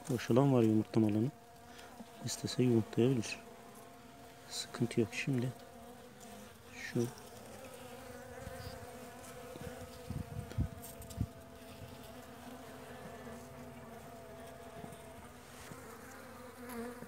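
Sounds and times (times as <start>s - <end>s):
honeybees humming: 0.0s - 17.0s.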